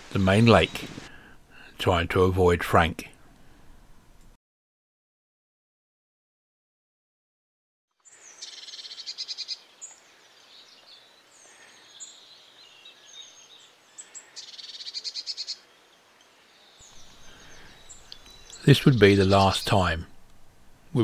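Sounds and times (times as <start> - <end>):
bird chirps: 8.0 - 19.9
small birds trilling song: 8.0 - 20.0.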